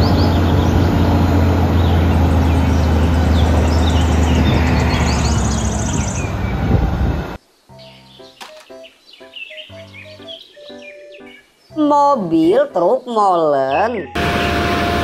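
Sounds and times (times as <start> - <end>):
diesel engine running: 0.0 - 7.4, 14.1 - 15.0
birds chirping: 0.0 - 14.6.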